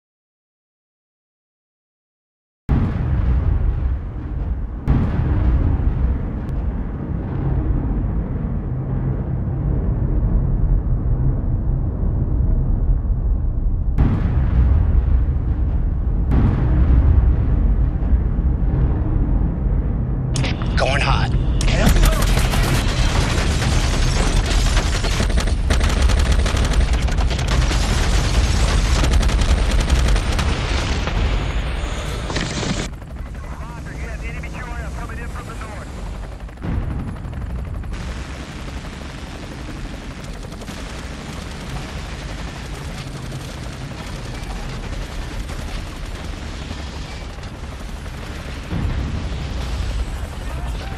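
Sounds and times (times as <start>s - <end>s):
deep rumbling soundtrack music: 2.7s - 50.9s
automatic gunfire: 21.7s - 30.9s.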